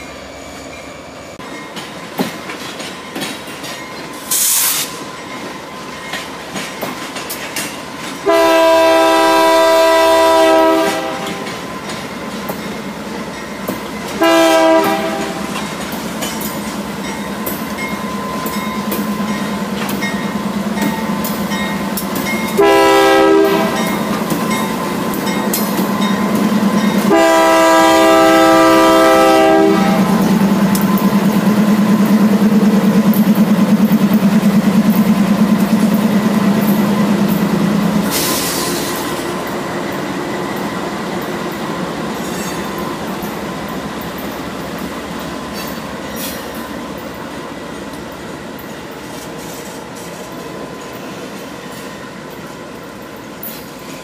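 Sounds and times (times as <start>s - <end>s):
brief hiss: 4.2s - 5.0s
diesel locomotives droning: 7.9s - 54.0s
train horn blast: 8.2s - 11.5s, 14.2s - 15.6s, 22.5s - 24.0s, 27.0s - 30.2s.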